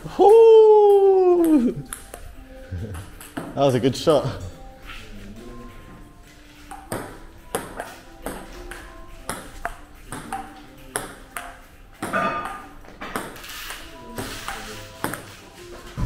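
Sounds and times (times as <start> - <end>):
table tennis ball on paddles: 0.8 - 2.3, 2.9 - 3.6, 6.6 - 15.4
ball bouncing on table: 6.7 - 13.4, 14.2 - 15.3.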